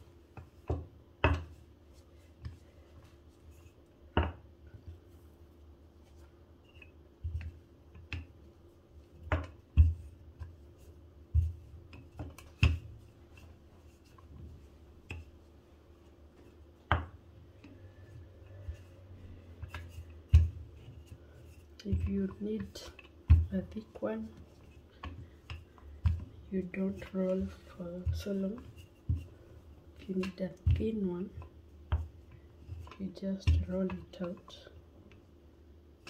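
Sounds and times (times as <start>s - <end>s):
rolling pin knocking on stone: 0.4s - 1.6s, 9.2s - 10.5s, 19.6s - 20.7s.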